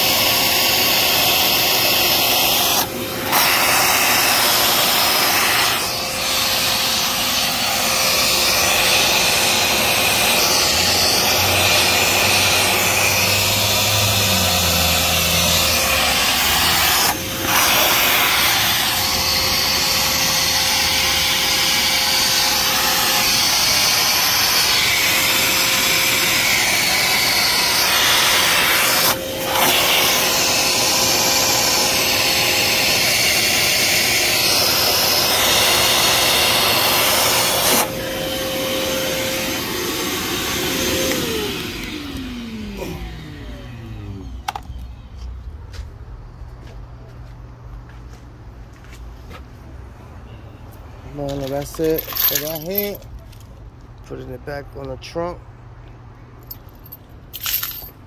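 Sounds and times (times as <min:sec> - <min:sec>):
air-blast tool hissing: 0:00.0 - 0:41.8.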